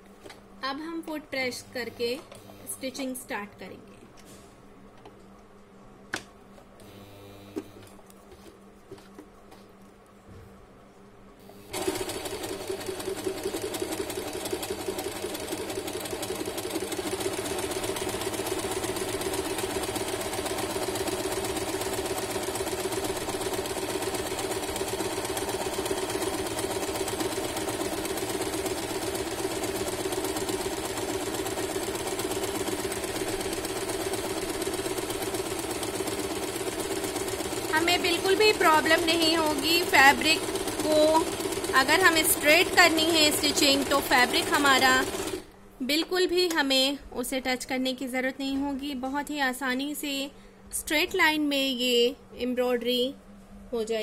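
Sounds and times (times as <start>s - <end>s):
electric sewing machine running: 11.7s - 45.5s.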